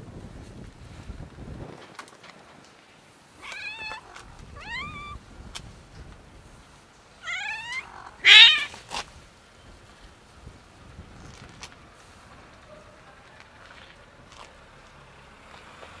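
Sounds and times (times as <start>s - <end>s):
cat meowing: 3.4s - 5.2s, 7.2s - 8.8s.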